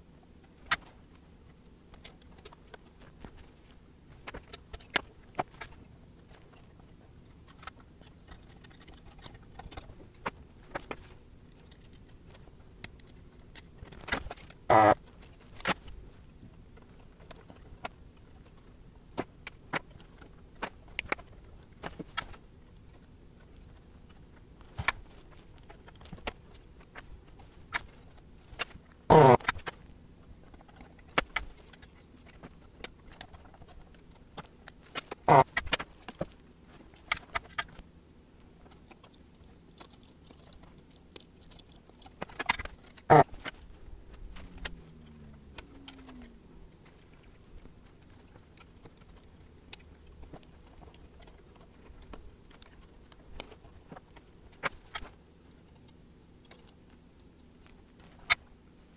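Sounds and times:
desoldering pump buzz: 0:14.7 - 0:15.0, 0:29.1 - 0:29.5, 0:35.2 - 0:35.6, 0:43.1 - 0:43.3.

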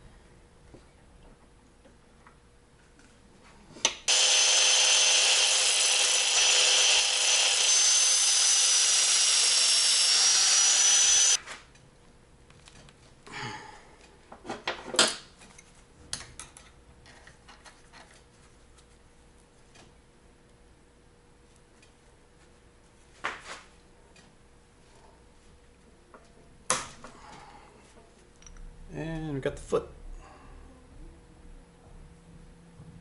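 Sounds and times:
angle grinder grinding metal: 0:04.1 - 0:11.4.

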